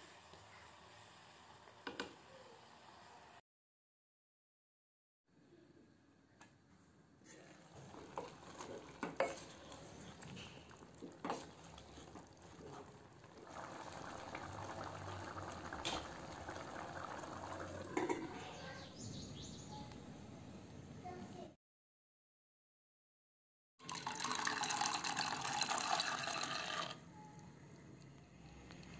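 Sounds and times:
wooden spoon stirring in a pot: 0:07.3 - 0:18.5.

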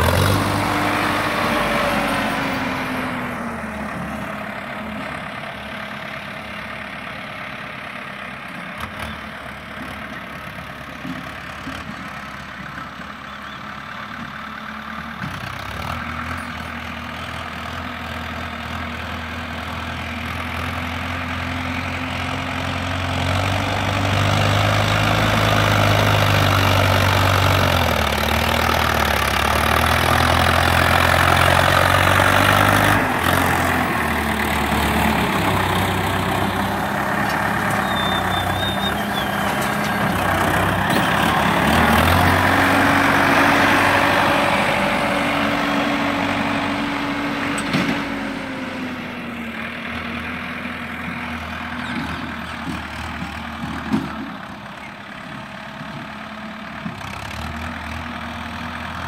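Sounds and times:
tractor diesel engine under load: 0:00.0 - 0:59.0.

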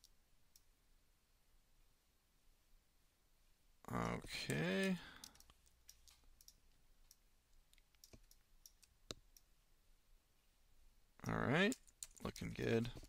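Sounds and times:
computer mouse clicks: 0:04.4 - 0:09.5.

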